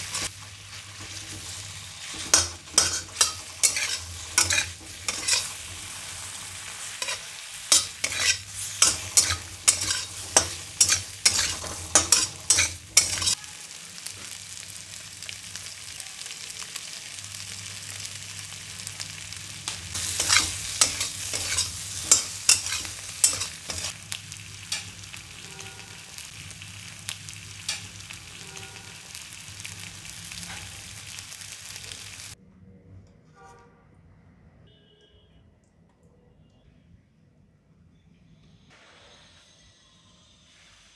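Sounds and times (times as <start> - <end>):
metal spatula scraping a wok: 0.0 - 13.4, 19.9 - 24.0
food sizzling: 0.0 - 32.4.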